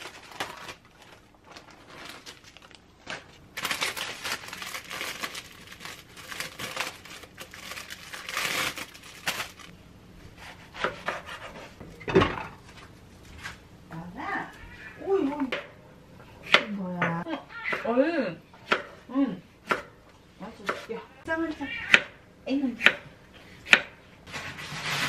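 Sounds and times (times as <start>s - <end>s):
plastic packaging crinkling: 0.0s - 9.7s.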